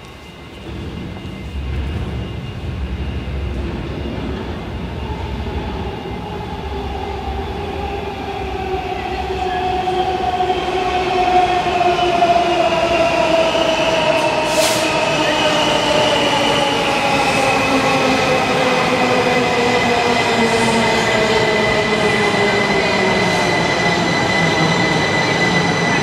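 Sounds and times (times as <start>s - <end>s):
wheels rumbling on rail: 0.0s - 10.3s.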